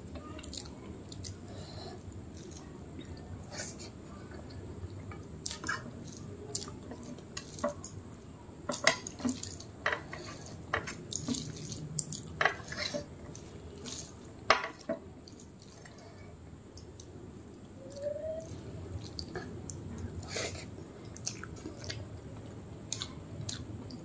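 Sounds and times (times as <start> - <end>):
rice squishing by hand: 5.5 - 16.2.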